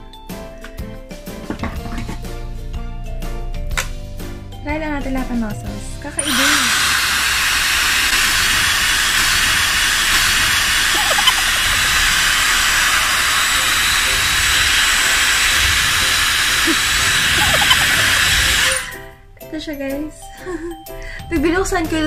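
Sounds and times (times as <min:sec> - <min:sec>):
hair dryer blowing air: 0:06.2 - 0:19.2.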